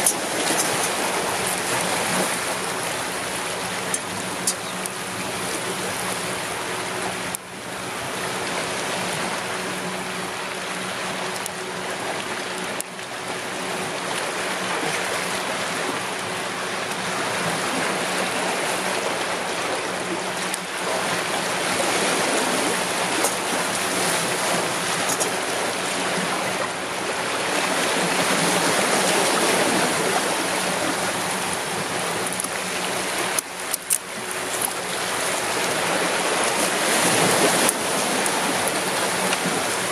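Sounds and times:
waves washing against rocks: 0.0s - 7.0s, 20.8s - 39.9s.

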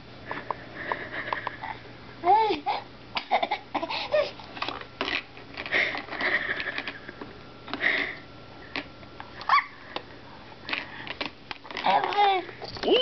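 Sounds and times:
baby squealing: 9.5s - 9.7s.

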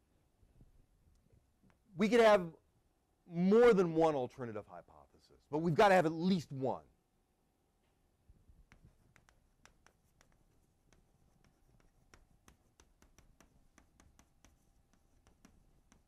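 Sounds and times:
pen writing ticks and scratches: 8.6s - 16.0s.

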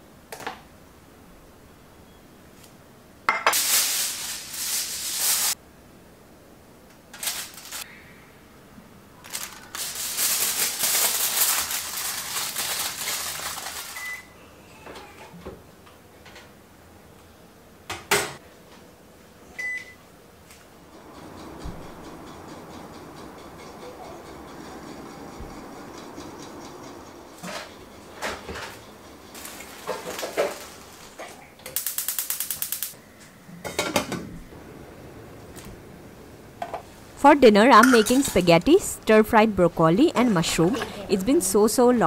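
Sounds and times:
aluminium foil crinkling: 7.1s - 7.9s, 9.2s - 14.2s
oven touch panel beeps: 14.0s - 14.4s, 19.6s - 20.0s
low steady hum: 33.0s - 42.0s.

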